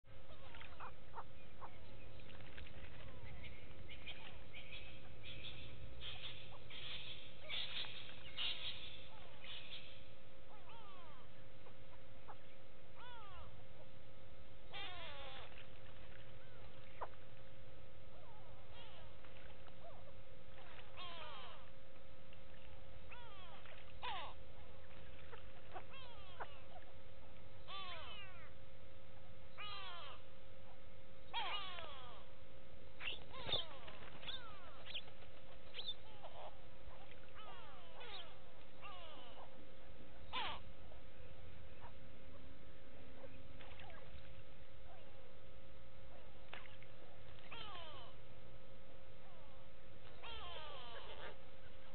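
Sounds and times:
faint steady hum: 0:00.1 - 0:51.9
birds calling with downward-sliding calls: 0:00.3 - 0:13.6, 0:14.7 - 0:17.2, 0:33.0 - 0:39.6, 0:40.3 - 0:40.7.

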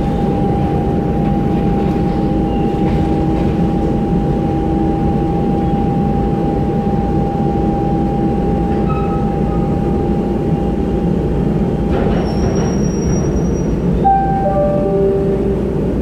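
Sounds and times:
train wheels rumbling: 0:00.0 - 0:16.0
tones stepping down in pitch: 0:14.1 - 0:16.0.

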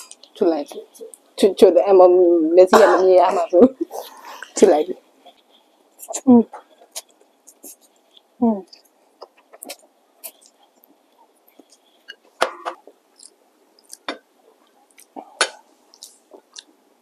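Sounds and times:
mouth clicks and smacks: 0:05.2 - 0:16.9
noodles slurped and chewed: 0:12.9 - 0:16.8.

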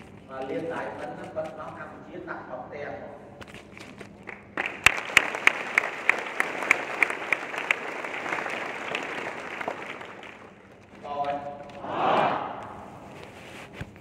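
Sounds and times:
sharp loud claps: 0:04.3 - 0:10.5
audience applause: 0:04.3 - 0:10.8.

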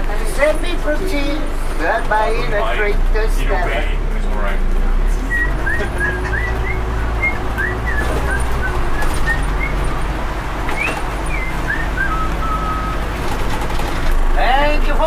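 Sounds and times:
bus engine and road rumble: 0:00.0 - 0:15.0
high chirping squeaks: 0:10.7 - 0:13.1.

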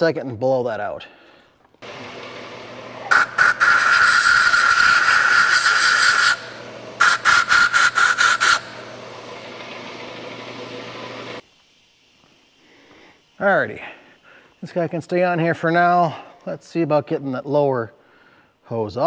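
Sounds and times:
steady low hum: 0:01.1 - 0:16.4
compressed air blasts hissing: 0:03.0 - 0:08.9.

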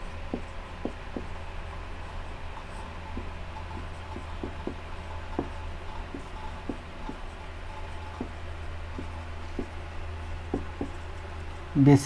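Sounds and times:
marker pen tapping on whiteboard: 0:00.0 - 0:01.4, 0:02.6 - 0:09.9, 0:10.5 - 0:11.0
steady low hum: 0:00.0 - 0:12.0.

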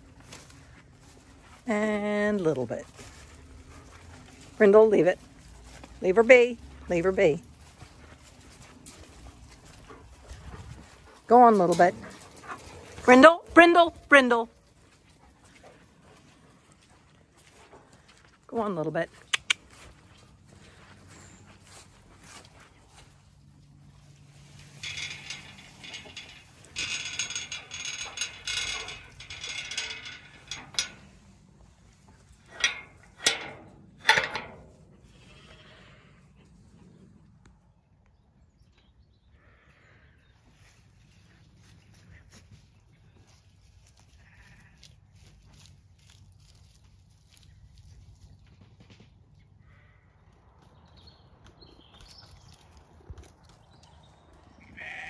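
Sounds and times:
sharp metal clicks: 0:19.3 - 0:19.6, 0:32.5 - 0:34.7
rusty gate hinges grinding: 0:23.8 - 0:35.6.

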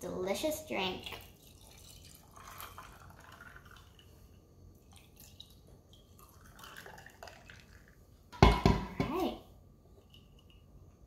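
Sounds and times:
liquid pouring over ice: 0:01.0 - 0:04.2, 0:04.8 - 0:08.0.

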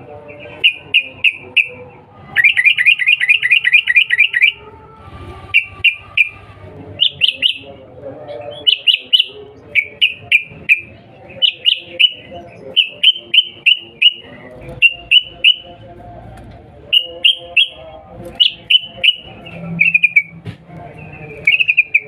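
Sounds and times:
bulbul sharp alarm calls: 0:08.5 - 0:15.7.

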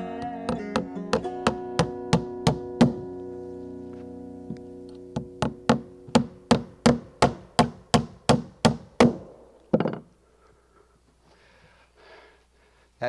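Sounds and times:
hammer nailing into wood: 0:01.8 - 0:03.0, 0:05.2 - 0:10.1.

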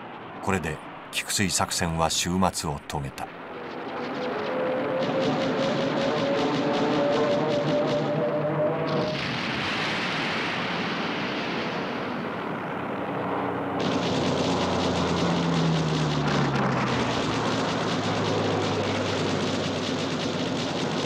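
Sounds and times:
aircraft engine passing: 0:12.4 - 0:21.0.

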